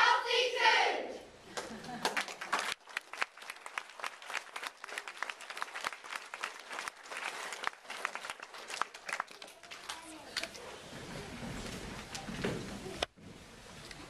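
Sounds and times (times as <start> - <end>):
audience applauding: 1.6 - 10.2.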